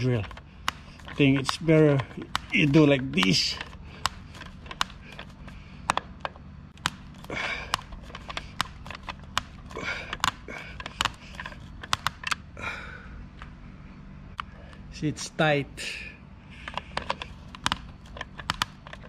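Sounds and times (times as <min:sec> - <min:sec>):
screwdriver clicking and scraping: 0:00.0 - 0:12.4, 0:16.6 - 0:19.0
steady low hum: 0:00.0 - 0:19.0.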